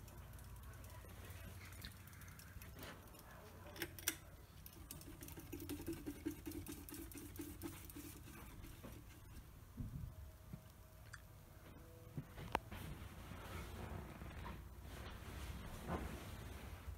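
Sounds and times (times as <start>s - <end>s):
hand rubbing fan blades: 0.0s - 9.8s
ceiling fan motor hum: 0.0s - 16.9s.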